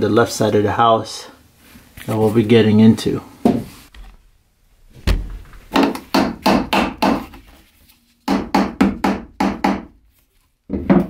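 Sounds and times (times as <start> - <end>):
hammer striking nails into wood: 5.7 - 7.4, 8.3 - 9.9.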